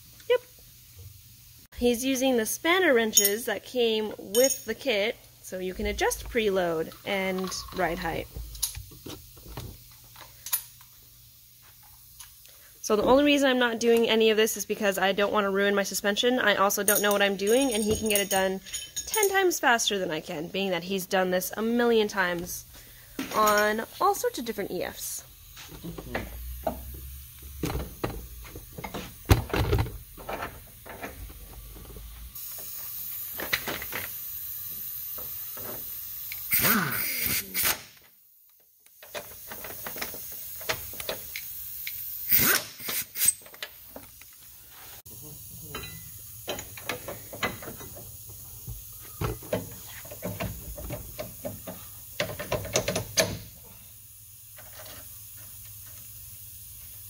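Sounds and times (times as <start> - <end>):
steady hiss: 0.0 - 38.2, 38.8 - 57.0
pneumatic impact gun bursts: 32.4 - 38.1, 39.1 - 43.6.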